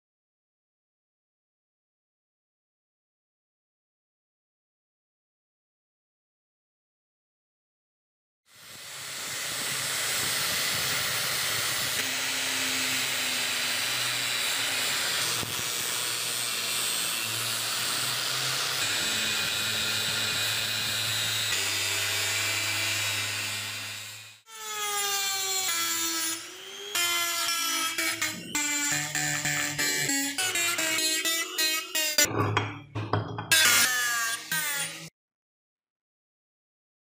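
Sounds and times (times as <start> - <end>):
angle grinder grinding steel: 8.6 - 32.3, 33.5 - 35.1.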